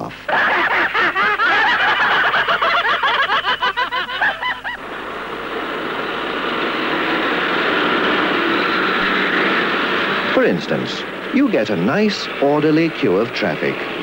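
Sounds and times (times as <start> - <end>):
cartoon voices laughing: 0.3 - 4.8
car engines in traffic: 4.7 - 14.0.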